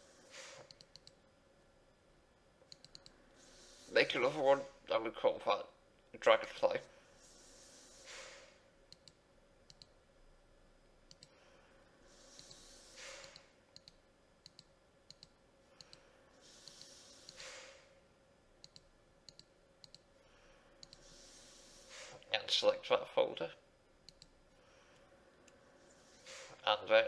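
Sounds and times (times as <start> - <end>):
slow breaths: 3.2 - 4.1, 6.8 - 8.8, 11.2 - 13.6, 15.6 - 18.0, 20.2 - 22.3, 24.5 - 26.6
faint mouse clicks: 11.1 - 11.4, 18.6 - 20.0, 24.1 - 25.6.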